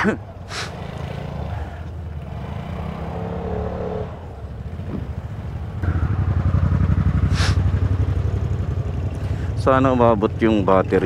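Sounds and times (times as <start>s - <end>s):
scooter engine running: 4.4s - 11.0s.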